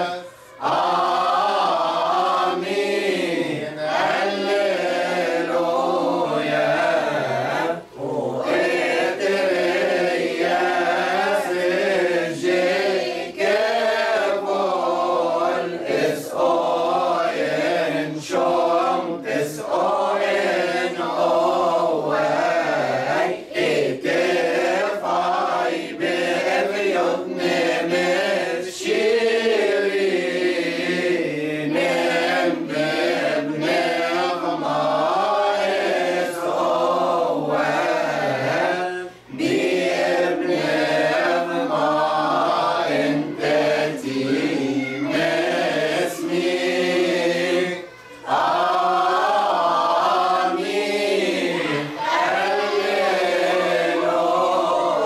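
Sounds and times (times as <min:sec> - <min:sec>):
choir singing a hymn: 0:00.0 - 0:55.0.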